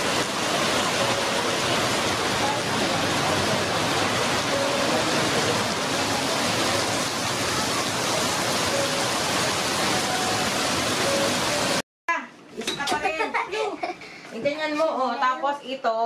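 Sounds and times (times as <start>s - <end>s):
heavy rain on pavement and cars: 0.0s - 11.8s.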